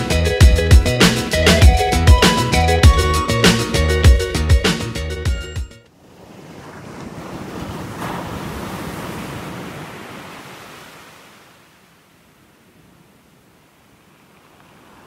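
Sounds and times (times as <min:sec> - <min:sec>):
small waves breaking on beach: 0:05.9 - 0:15.0.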